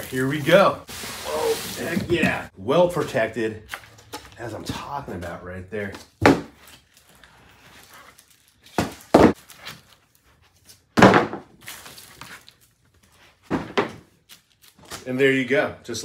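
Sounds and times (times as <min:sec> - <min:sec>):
cardboard thuds and scrapes: 0:01.0 - 0:02.5, 0:08.8 - 0:09.4, 0:13.5 - 0:14.1.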